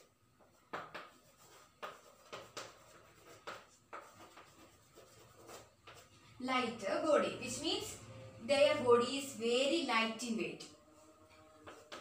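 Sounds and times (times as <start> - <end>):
chalk scratching on blackboard: 0.4 - 6.2, 10.9 - 12.0.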